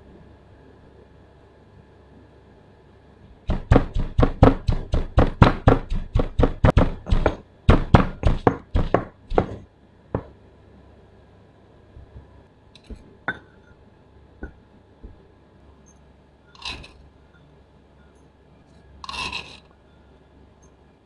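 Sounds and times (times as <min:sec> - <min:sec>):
pestle pounding in mortar: 0:03.5 - 0:09.6.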